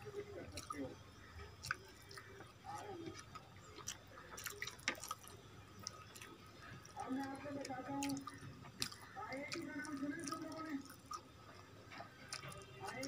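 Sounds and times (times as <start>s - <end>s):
mouth clicks and smacks chewing: 0.0s - 13.0s.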